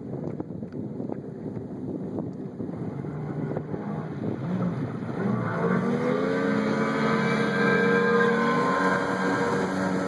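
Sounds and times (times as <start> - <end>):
jet boat engine accelerating: 2.4 - 10.0.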